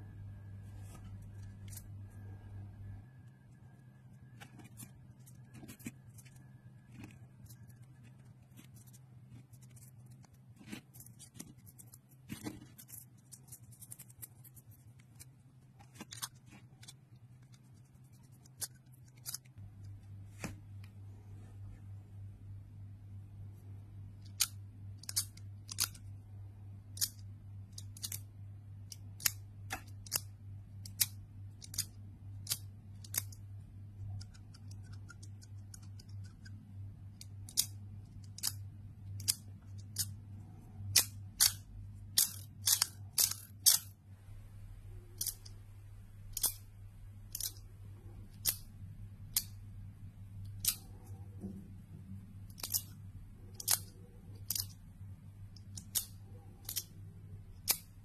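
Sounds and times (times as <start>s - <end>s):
low steady hum: 0.0s - 58.0s
metallic clicks of fidget toy: 26.9s - 28.3s, 42.2s - 43.9s, 45.2s - 45.6s, 46.3s - 46.6s, 47.3s - 47.7s, 48.3s - 48.6s, 52.5s - 54.8s, 55.6s - 57.0s, 57.6s - 57.9s.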